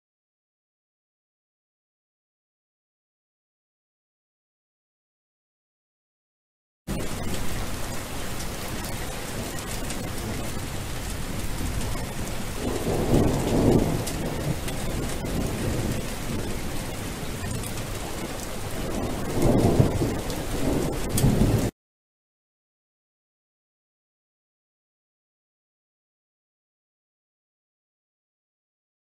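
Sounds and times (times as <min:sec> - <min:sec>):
steady rain falling: 0:06.9 - 0:21.7
thunder rolling: 0:06.9 - 0:21.7.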